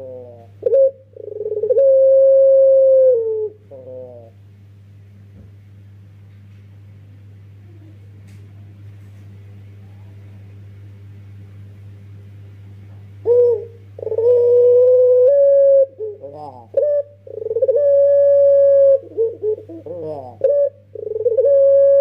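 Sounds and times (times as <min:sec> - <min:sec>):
dove cooing: 0:00.0 - 0:04.4, 0:13.2 - 0:22.0.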